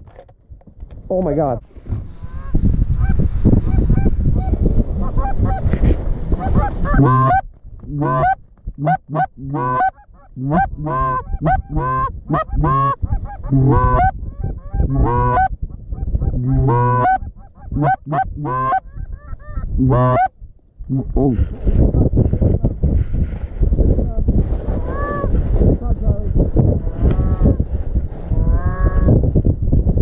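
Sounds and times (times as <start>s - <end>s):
goose honking: 6.5s - 7.4s, 8.0s - 14.1s, 14.9s - 15.5s, 16.2s - 18.8s, 19.9s - 20.3s.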